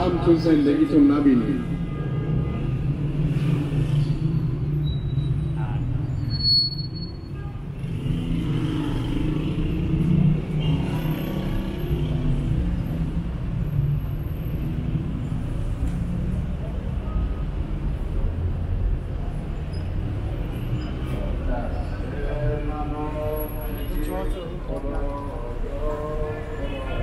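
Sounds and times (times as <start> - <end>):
rumble of passing cars: 0.0 - 27.0
indistinct voices: 20.9 - 27.0.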